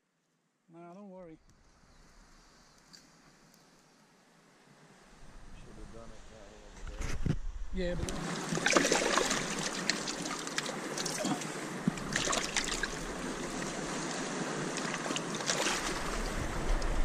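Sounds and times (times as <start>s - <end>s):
water lapping over stones: 8.0s - 17.0s
hands splashing in water: 8.1s - 13.8s.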